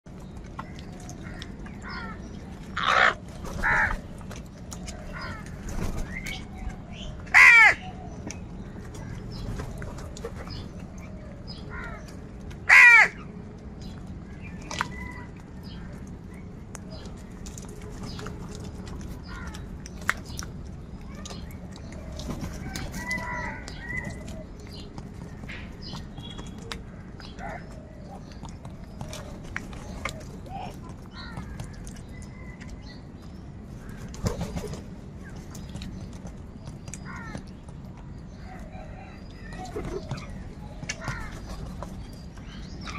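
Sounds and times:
crows cawing: 0:02.8 - 0:04.0, 0:07.3 - 0:07.8, 0:12.7 - 0:13.3.

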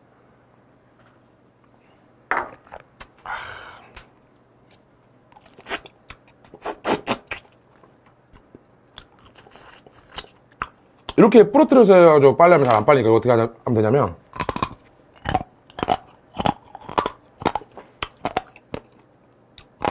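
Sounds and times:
breathy exhale: 0:03.2 - 0:04.0
wet sucking and smacking: 0:03.9 - 0:07.6
crab shell crunching: 0:08.4 - 0:11.2, 0:14.3 - 0:19.9.

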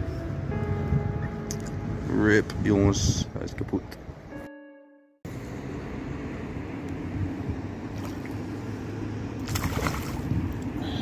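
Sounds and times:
fish splashing at water surface: 0:09.4 - 0:10.3.

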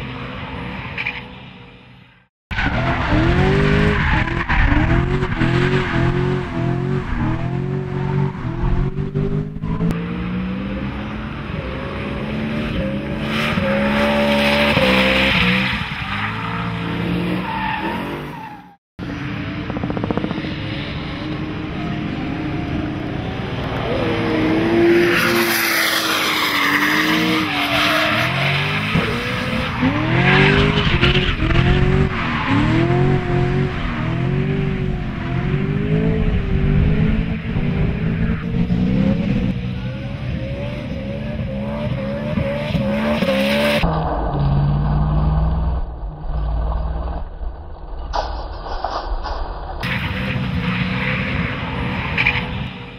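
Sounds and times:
car engine revving: 0:02.5 - 0:18.2, 0:22.7 - 0:47.4.

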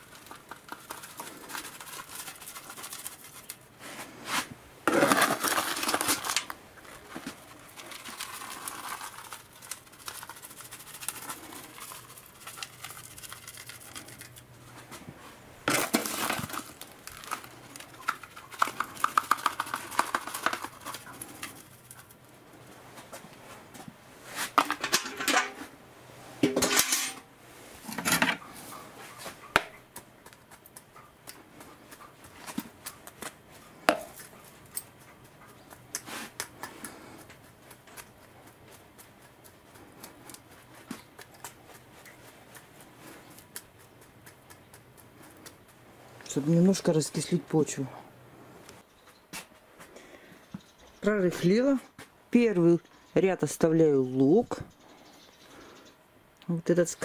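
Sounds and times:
spade scraping soil: 0:03.8 - 0:06.4.

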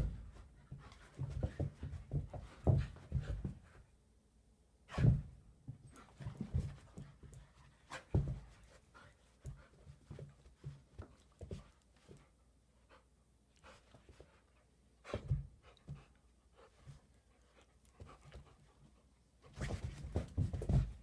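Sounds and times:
knocks of bodies or paws: 0:00.0 - 0:03.8, 0:04.9 - 0:12.2, 0:19.5 - 0:21.0.

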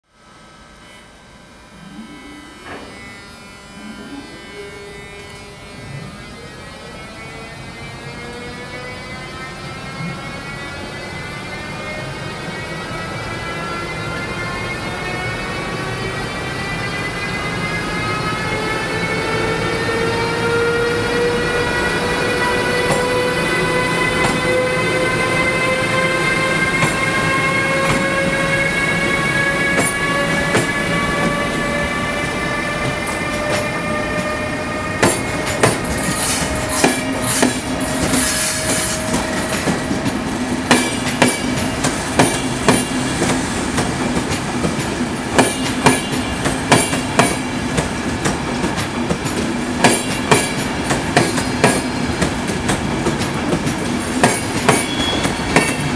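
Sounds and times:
electric locomotive drive whining: 0:00.2 - 0:55.9
high wheel squeal: 0:03.9 - 0:43.4, 0:54.4 - 0:55.9.

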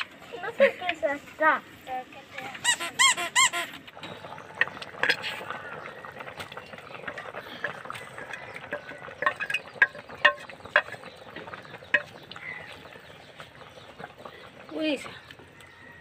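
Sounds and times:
spatula knocking against metal pan: 0:08.7 - 0:11.0.

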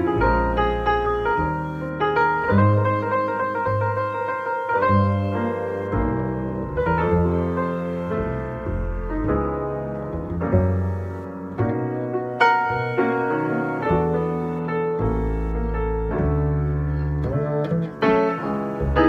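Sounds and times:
grand piano chords: 0:00.0 - 0:19.0
plucked double bass: 0:00.0 - 0:19.0.

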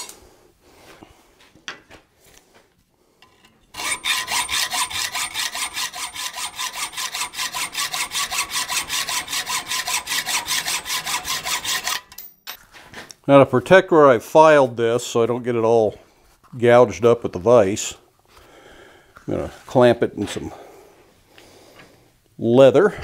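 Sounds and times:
hacksaw cutting steel: 0:03.2 - 0:12.3.

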